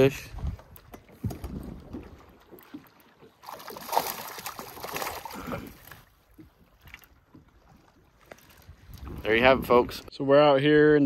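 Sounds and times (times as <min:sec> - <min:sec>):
water sloshing: 0:00.0 - 0:10.1
fish splashing at the surface: 0:03.4 - 0:05.9.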